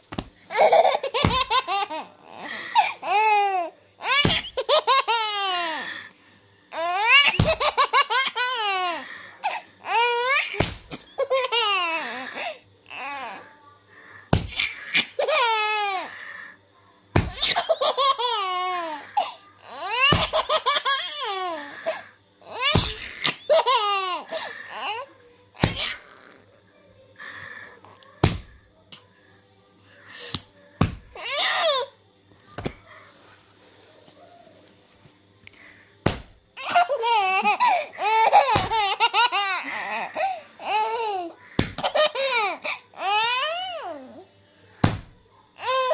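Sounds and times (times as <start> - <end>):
baby laughing: 0.5 - 5.9, 6.8 - 12.5, 14.6 - 16.0, 17.3 - 25.0, 36.6 - 43.2.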